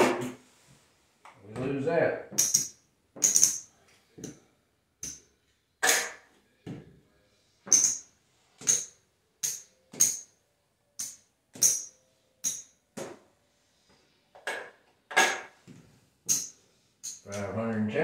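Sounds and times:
casino chips clacking: 0:02.3 - 0:03.7, 0:07.7 - 0:10.3, 0:11.0 - 0:12.7, 0:16.3 - 0:17.5.

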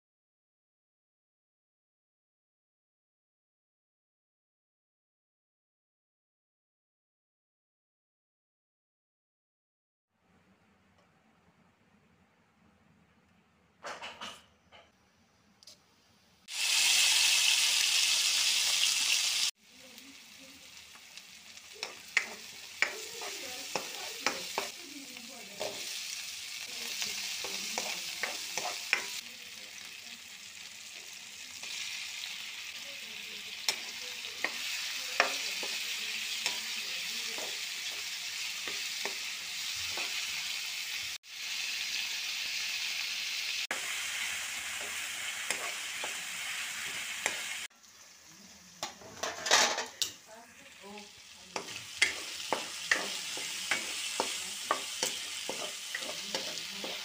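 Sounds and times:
seeds sizzling in hot oil: 0:16.4 - 0:57.0
vegetables frying: 0:16.4 - 0:57.0
spatula scraping a pan: 0:21.8 - 0:24.8, 0:25.5 - 0:29.2, 0:43.8 - 0:47.7, 0:51.5 - 0:57.0.

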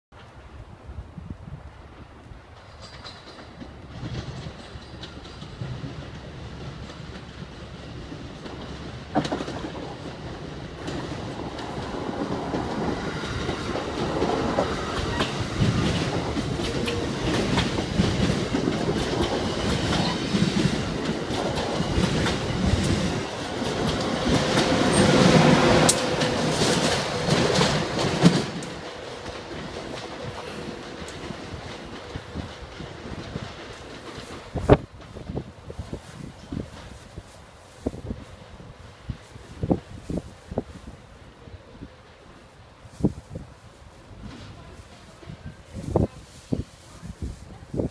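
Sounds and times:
train passing at speed: 0:00.2 - 0:47.9
wheels clicking over rail joints: 0:02.5 - 0:37.0.

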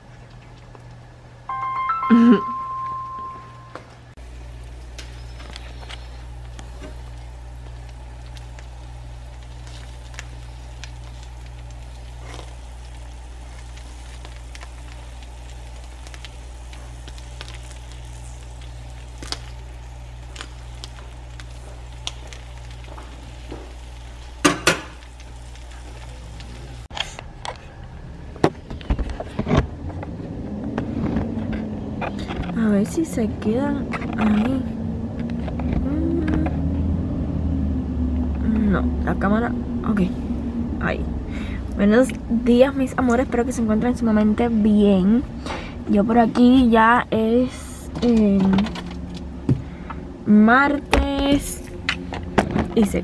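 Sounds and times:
low steady hum: 0:00.0 - 0:53.0
sandwiches sizzling in frying pan: 0:04.2 - 0:26.9.

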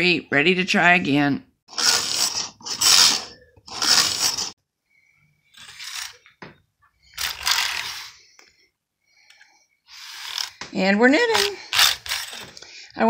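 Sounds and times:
knitting machine carriage strokes: 0:01.7 - 0:04.6, 0:05.5 - 0:06.3, 0:07.1 - 0:08.2, 0:09.9 - 0:10.6, 0:11.3 - 0:12.6.

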